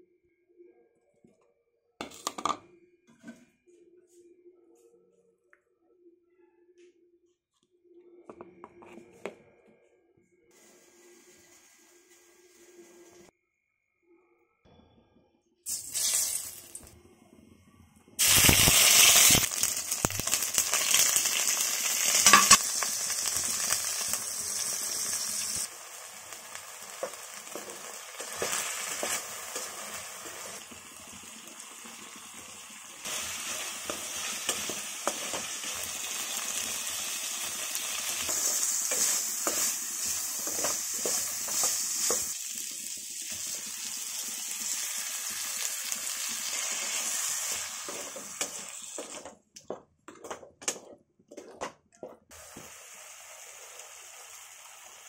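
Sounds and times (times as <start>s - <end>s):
meat sizzling in hot oil: 15.7s - 16.8s, 18.2s - 49.2s, 52.4s - 55.0s
stirring knocks and scrapes: 47.8s - 52.3s.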